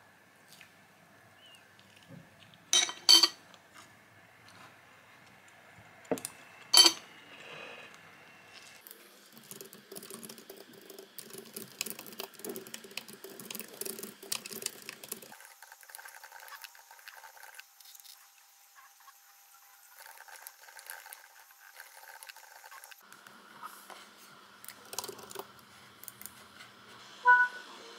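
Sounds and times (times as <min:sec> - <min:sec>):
rapid keyboard typing: 0:09.4 - 0:15.3.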